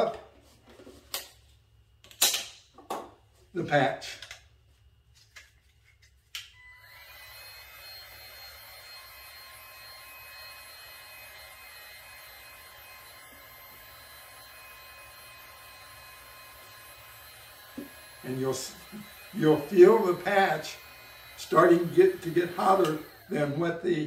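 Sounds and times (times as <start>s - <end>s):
heat gun fan blowing: 6.8s - 24.0s.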